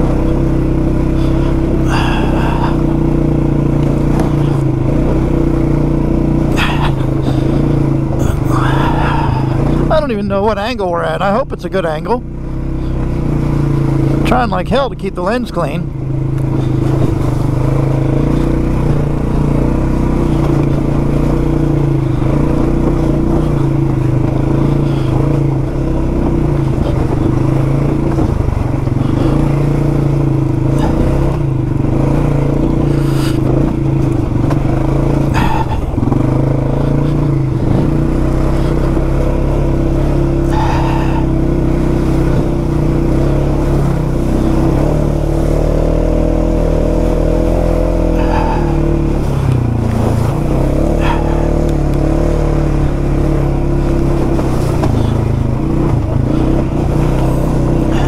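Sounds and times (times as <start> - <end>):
vehicle engine running: 0.0 - 58.0.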